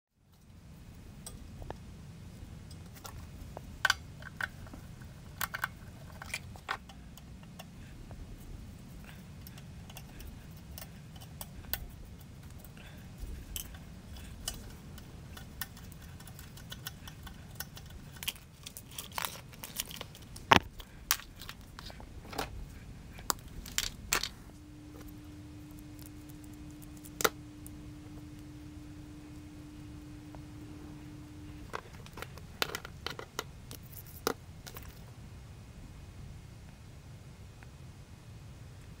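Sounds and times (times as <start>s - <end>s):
steady low hum: 0.1s - 39.0s
low background rumble: 0.2s - 39.0s
cable and terminal block clicks: 9.4s - 21.9s.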